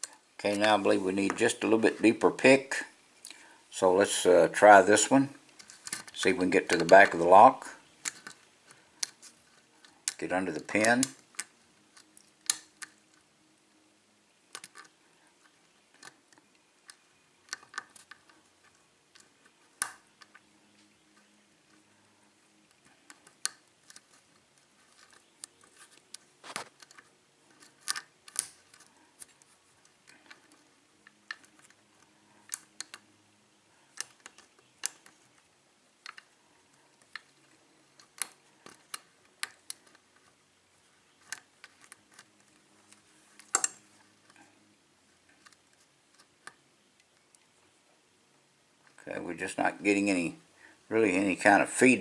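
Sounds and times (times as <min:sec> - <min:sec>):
lock pick clicking on pins: 0:09.8 - 0:13.0, 0:26.8 - 0:33.1, 0:37.0 - 0:40.0, 0:43.4 - 0:44.3.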